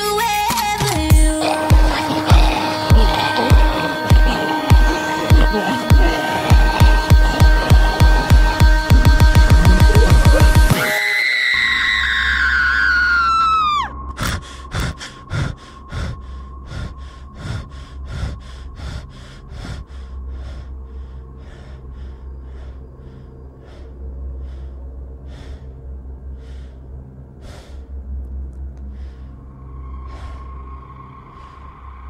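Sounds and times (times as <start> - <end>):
rhythmic gasping breaths: 0.5 - 11.0, 14.1 - 32.0
girl screaming: 9.7 - 13.9.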